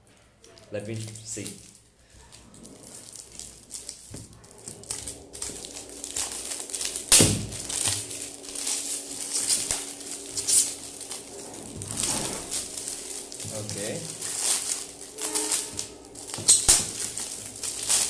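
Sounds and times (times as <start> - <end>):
wrapping paper tearing and crinkling: 0.4 - 18.0.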